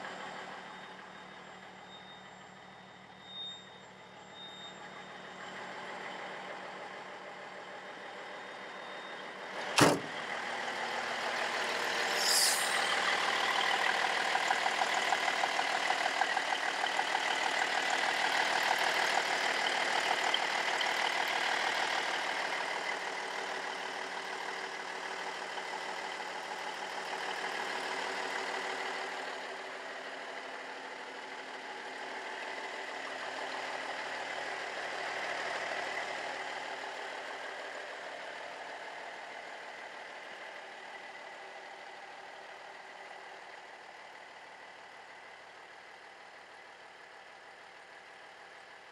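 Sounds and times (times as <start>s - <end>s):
diesel engine idling: 4.0s - 48.9s
sharp click: 9.8s - 10.1s
short hiss: 12.2s - 13.0s.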